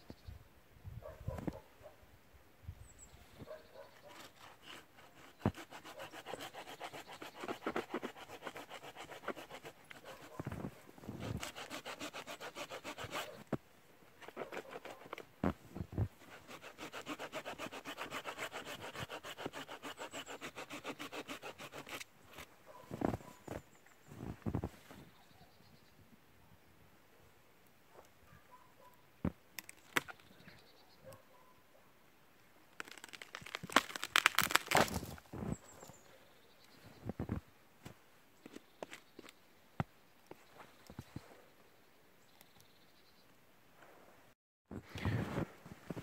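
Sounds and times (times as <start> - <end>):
hand saw cutting a branch: 4.0 - 10.4, 11.1 - 13.5, 14.2 - 15.2, 16.2 - 22.5, 32.8 - 35.0.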